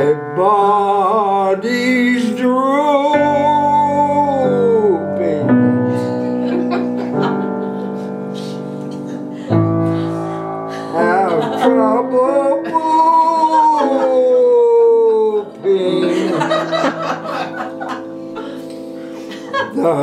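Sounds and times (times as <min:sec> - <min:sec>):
elderly man singing: 0:00.0 - 0:06.0, 0:10.8 - 0:17.2, 0:19.6 - 0:20.0
grand piano chords: 0:00.0 - 0:20.0.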